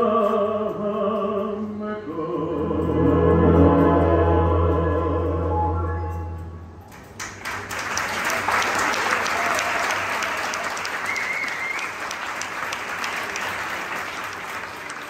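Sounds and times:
short high tone: 2.6 - 6.9
audience applauding: 7.0 - 15.0.

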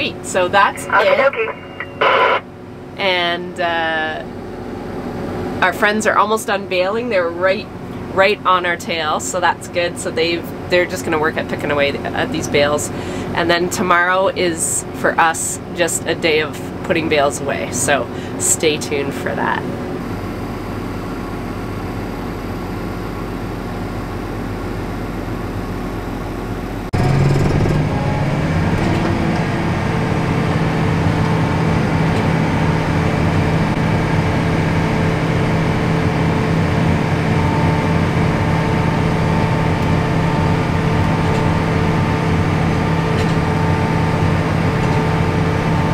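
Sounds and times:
steady noise: 0.0 - 2.5
tractor engine running under load: 22.4 - 45.9.

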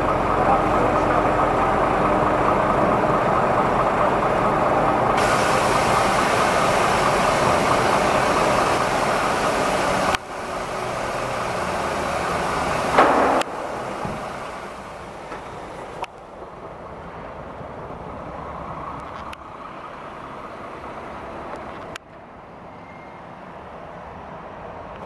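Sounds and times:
crane diesel engine running: 0.0 - 22.0
hydraulic hiss: 5.2 - 16.1
short loud noise: 13.0 - 16.0.

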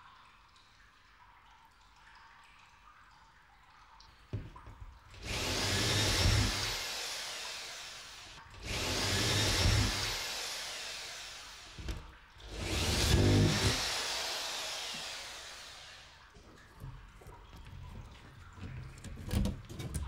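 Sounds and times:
harsh whirring with deep rumble: 5.2 - 16.2.

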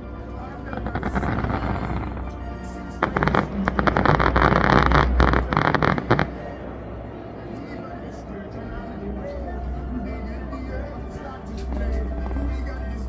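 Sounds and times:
music playing: 0.0 - 13.0
fireworks bursting and crackling: 3.0 - 6.4.

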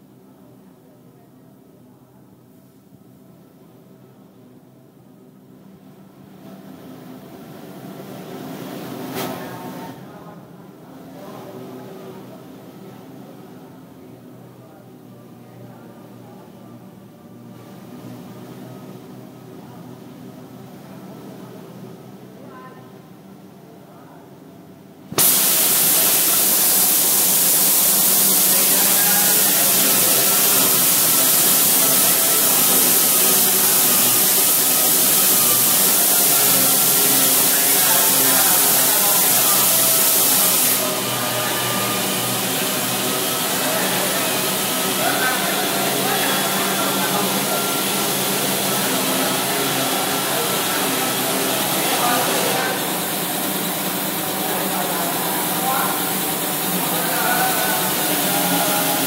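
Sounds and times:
pneumatic sander air hiss: 25.1 - 59.0.

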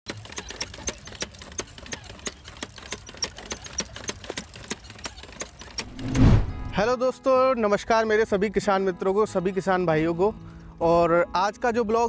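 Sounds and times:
seed planter clicking: 0.1 - 5.9.

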